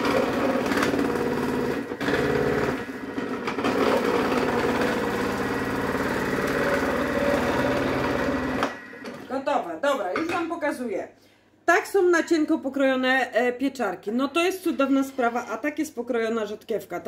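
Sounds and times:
food processor motor running: 0.0s - 9.3s.

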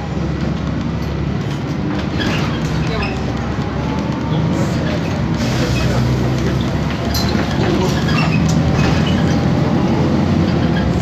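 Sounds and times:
bus diesel engine drone: 0.0s - 11.0s
road noise: 0.0s - 11.0s.

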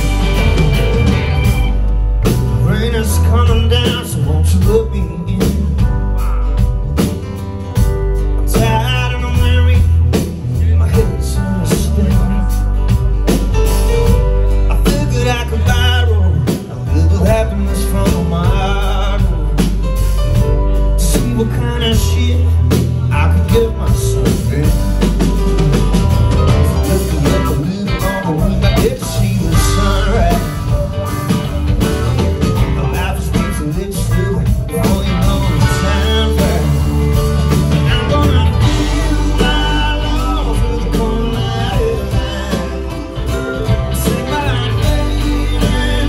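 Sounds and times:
steady beat: 0.0s - 2.7s
bass guitar: 0.0s - 46.0s
electric and acoustic guitars: 0.0s - 46.0s
man singing lead vocals: 2.2s - 7.1s, 8.4s - 46.0s.

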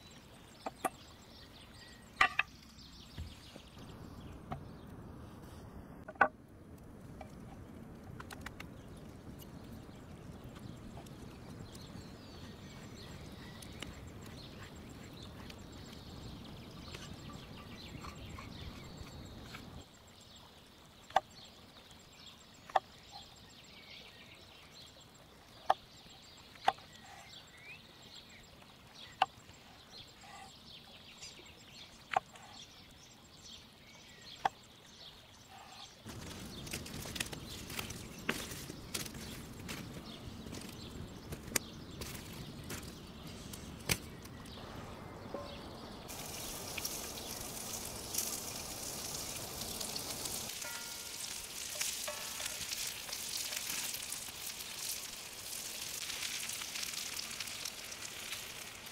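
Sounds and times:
faint birdsong: 0.0s - 6.2s, 7.2s - 58.7s
crackling: 36.1s - 44.7s, 45.3s - 58.9s.

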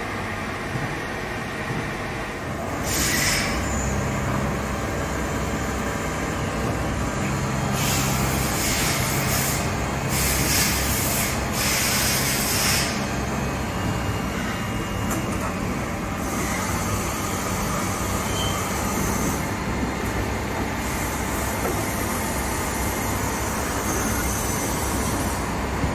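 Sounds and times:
lathe machine hum: 0.0s - 25.9s
hissing coolant spray: 7.8s - 13.0s.

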